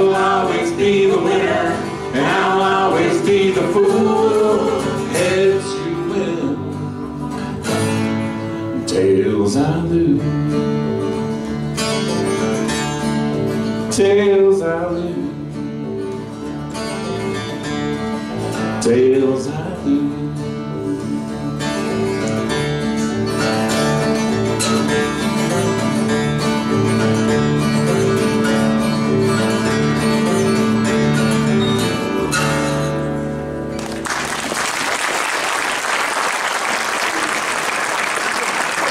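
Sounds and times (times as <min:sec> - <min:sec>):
acoustic guitars and upright bass: 0:00.0 - 0:38.9
audience applause: 0:33.8 - 0:38.9.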